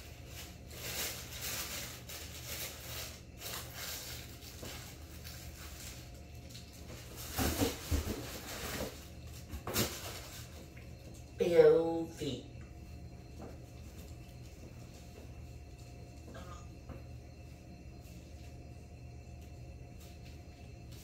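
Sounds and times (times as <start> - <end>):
tissue paper rustling: 0.0 - 6.2.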